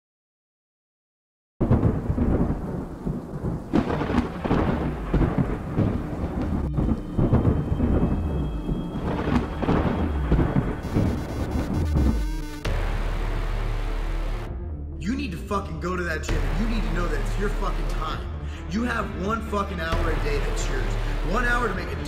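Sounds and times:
thunder rolling: 1.6s - 13.8s
heavy rain: 1.6s - 14.5s, 20.0s - 22.0s.

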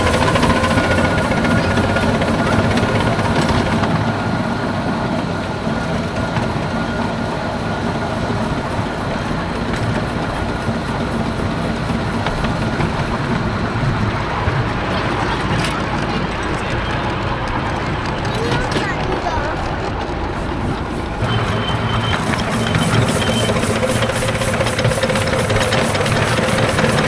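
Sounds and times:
steam locomotive engine working: 0.0s - 27.0s
train wheels on rails: 0.0s - 27.0s.

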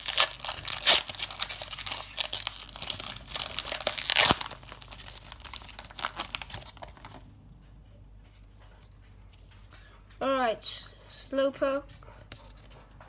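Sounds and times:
foil wrapper tearing and crinkling: 0.0s - 7.2s.

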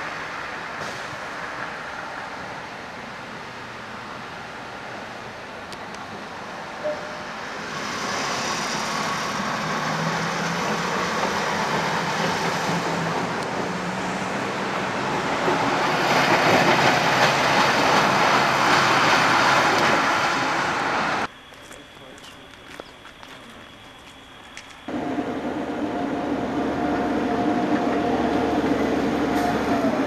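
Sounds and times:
train wheels on track: 5.8s - 21.3s, 24.8s - 30.0s
diesel engine drone: 24.4s - 30.0s.

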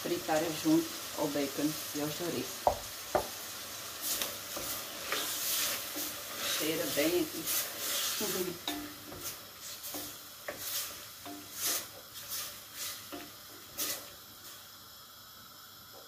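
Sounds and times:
food sizzling in a pot: 0.0s - 16.0s
spoon scraping pot: 4.0s - 14.1s.

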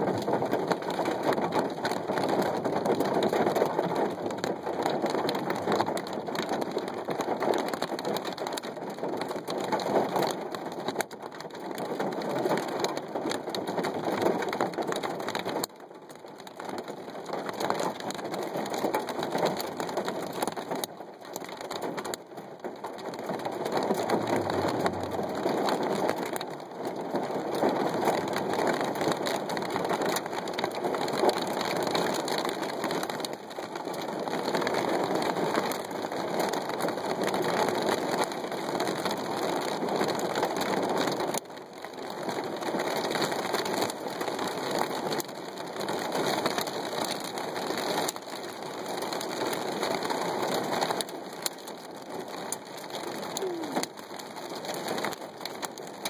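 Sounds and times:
heavy rain beating on glass: 0.1s - 56.0s.

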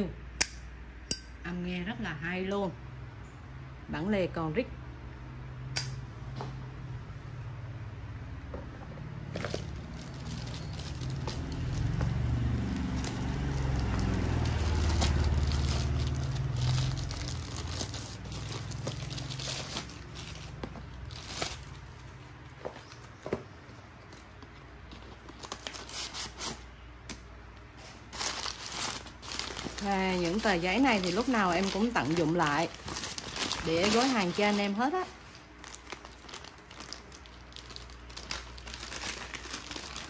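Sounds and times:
wrapping paper crinkling: 9.3s - 22.2s, 24.8s - 26.6s, 27.8s - 40.0s.

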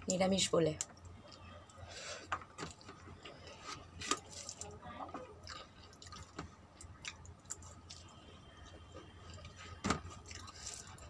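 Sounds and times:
wet chewing: 0.9s - 11.0s.

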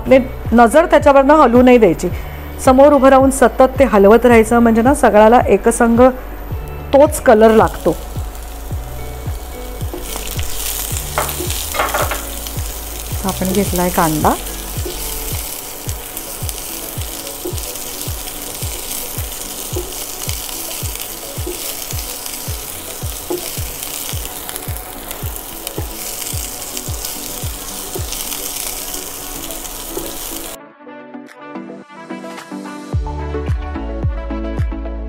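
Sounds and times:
onions sizzling in oil: 5.0s - 30.6s
background music with beat: 6.0s - 7.2s, 7.8s - 35.0s.

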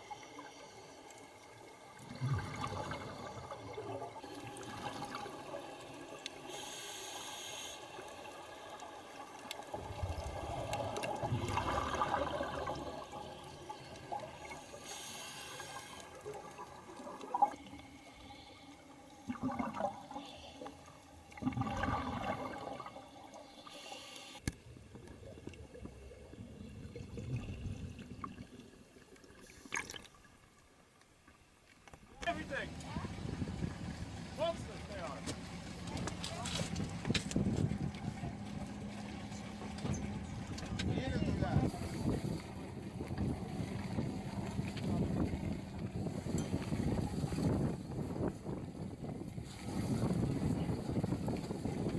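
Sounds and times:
exhaled air bubbling underwater: 0.0s - 30.3s, 41.6s - 51.9s
watery hiss: 6.4s - 8.3s, 9.8s - 16.4s, 17.3s - 24.4s.

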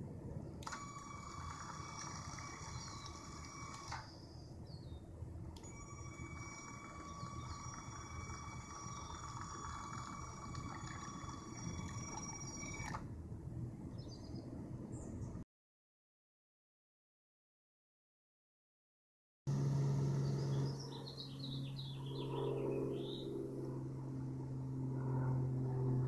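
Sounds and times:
electric motor whine: 0.6s - 4.4s, 5.6s - 13.1s, 19.5s - 21.5s
motor click: 0.6s - 4.4s, 5.6s - 13.1s.

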